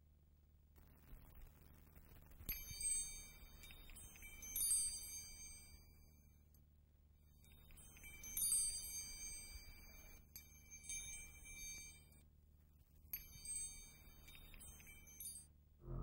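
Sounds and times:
metal wind chime tinkling: 2.6 - 6.4, 7.4 - 12.2, 13.1 - 15.5
faint low hum: 9.1 - 16.0.

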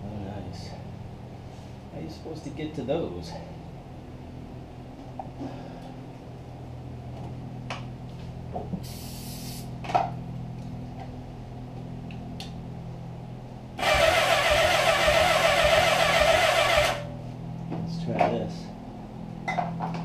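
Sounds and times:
steady low hum: 0.0 - 20.0
short hiss: 8.8 - 9.7.

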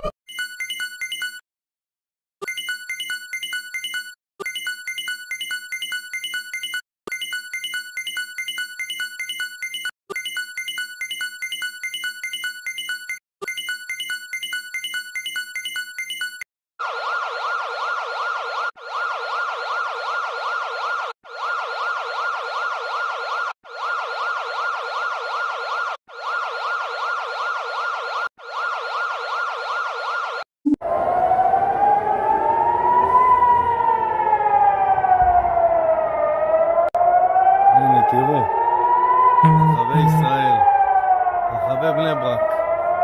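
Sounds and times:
civil defense siren wailing: 16.8 - 43.0
warbling electronic alert tone: 39.4 - 40.7.

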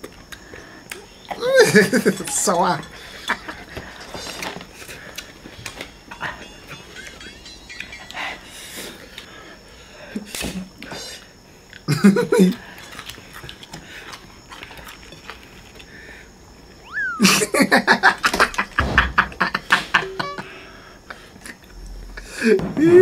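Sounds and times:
people eating clicks and crunches: 0.0 - 7.2, 7.8 - 16.7.

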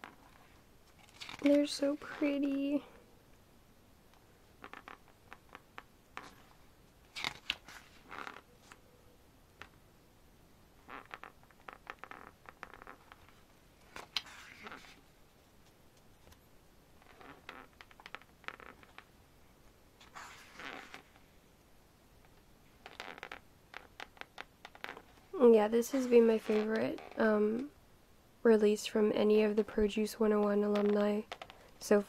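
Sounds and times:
book pages turning: 0.0 - 2.5, 6.2 - 8.8, 11.0 - 15.1, 20.0 - 21.2.

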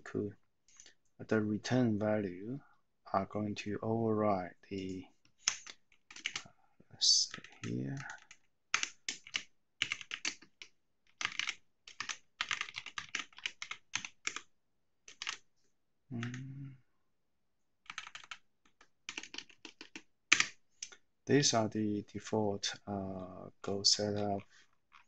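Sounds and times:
person humming: 16.1 - 16.8.

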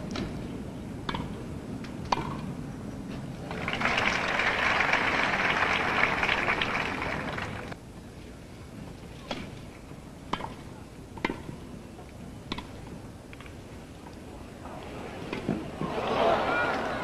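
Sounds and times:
tennis ball struck by rackets: 1.0 - 1.4, 2.1 - 2.5, 10.3 - 10.6, 11.2 - 11.5, 12.5 - 12.8
crowd applauding: 3.5 - 7.8, 15.9 - 17.0.

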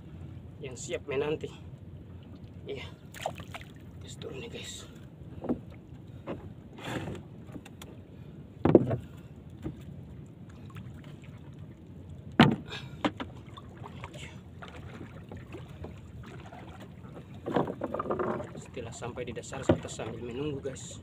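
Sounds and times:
water and wind: 0.0 - 21.0
paddle in water: 1.7 - 21.0
knocks against boat hull: 8.6 - 9.8, 12.4 - 13.3.

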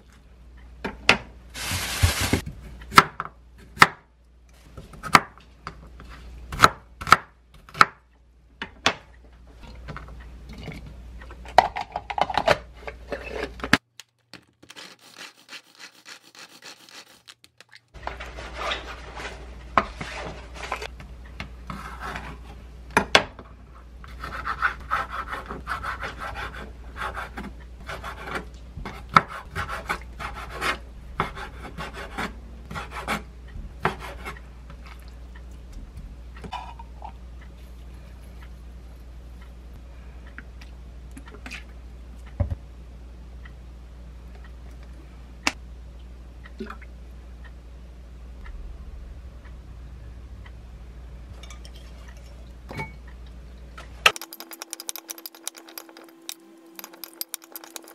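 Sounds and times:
rubbing and scraping on board: 14.7 - 17.4.

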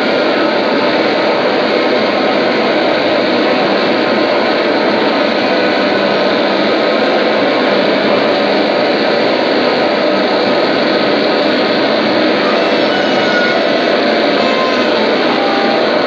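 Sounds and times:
experimental music noise: 10.4 - 16.0
saxophone: 12.3 - 16.0.

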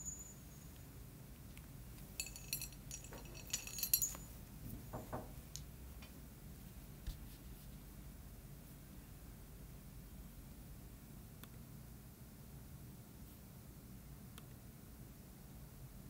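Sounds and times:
small hard objects clinking: 2.2 - 4.4.

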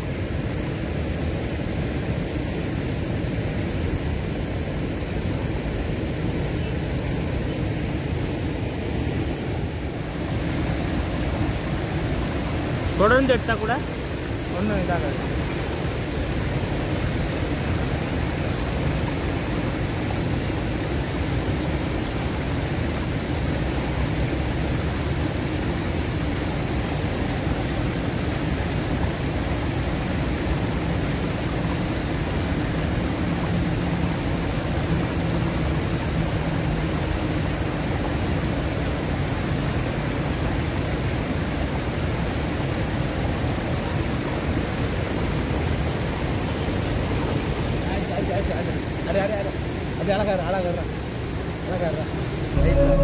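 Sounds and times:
river flowing: 0.0 - 53.0
faint low hum: 52.5 - 53.0.

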